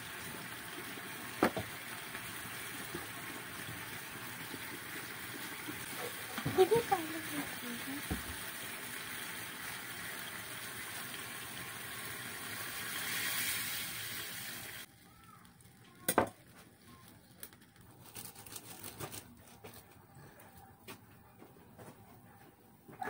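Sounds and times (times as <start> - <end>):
sauce sizzling in a frying pan: 0.0 - 16.1.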